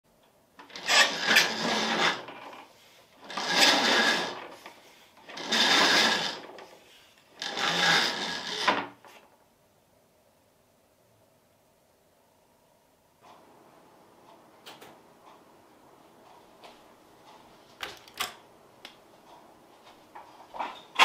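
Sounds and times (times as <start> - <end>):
roller shutter rattling: 0.6 - 2.6, 3.2 - 4.6, 5.2 - 6.7, 7.4 - 8.9.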